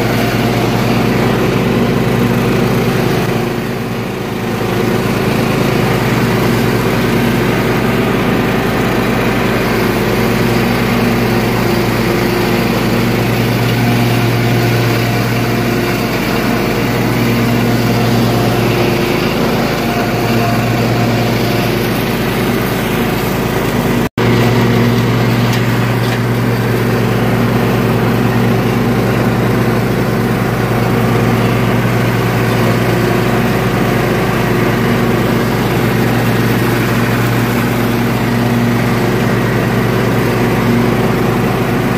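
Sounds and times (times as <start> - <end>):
riding mower engine running: 0.0 - 41.9.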